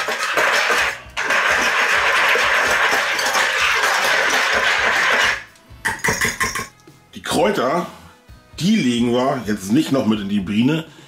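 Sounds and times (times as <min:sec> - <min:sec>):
whisk rattling in plastic bowl: 0:00.0 - 0:05.4.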